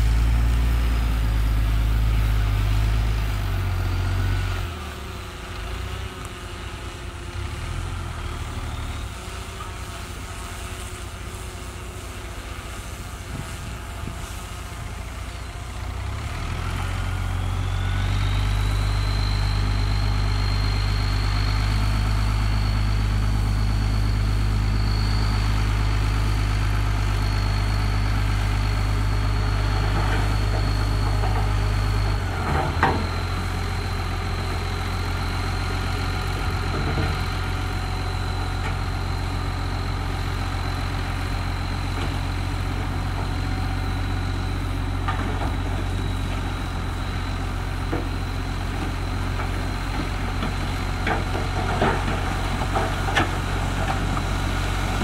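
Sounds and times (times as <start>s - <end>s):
heavy diesel engine running: 0.0s - 55.0s
high whine: 17.0s - 55.0s.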